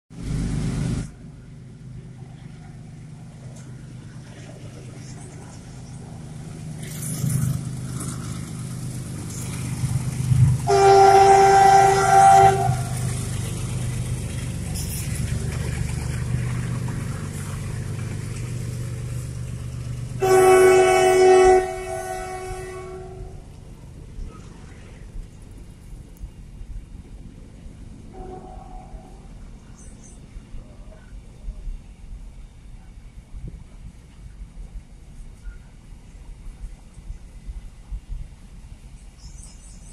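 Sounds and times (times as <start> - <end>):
diesel locomotive rumbling: 0.1 - 39.9
locomotive horn blasts: 10.6 - 13.1, 20.2 - 23.4, 28.1 - 29.3.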